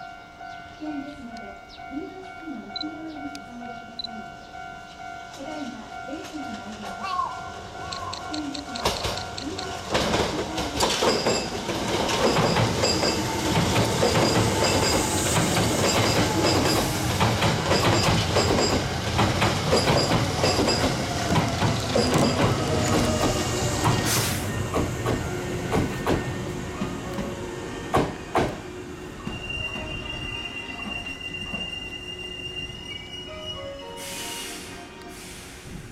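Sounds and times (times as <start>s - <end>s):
crossing warning bell ringing: 0.0s - 35.3s
train wheels clattering over rail joints: 7.9s - 28.6s
train brakes squealing: 10.8s - 19.0s, 19.6s - 24.9s, 29.1s - 35.9s.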